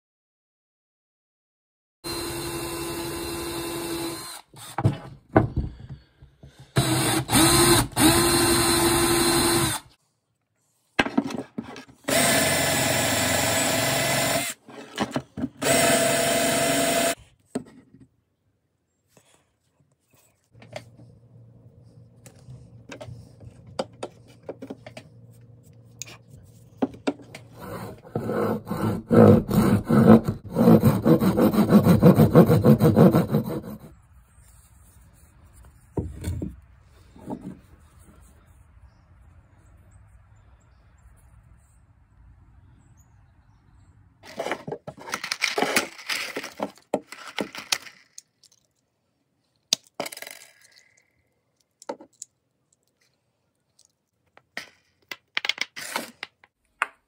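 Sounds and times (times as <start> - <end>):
power drill boring into wood: 2.1 - 4.8, 6.8 - 9.9, 12.1 - 14.6, 15.6 - 17.2
scraping on wood: 44.2 - 47.9.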